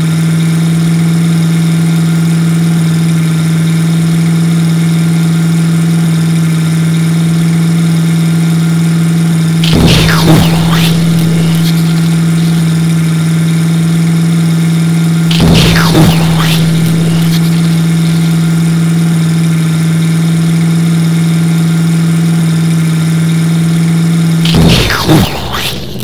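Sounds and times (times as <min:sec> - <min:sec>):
cartoon engine drone: 0:09.6 - 0:13.0, 0:15.3 - 0:19.2, 0:24.4 - 0:26.0
loud burst of noise: 0:09.6 - 0:13.1, 0:15.3 - 0:19.1, 0:24.4 - 0:26.0.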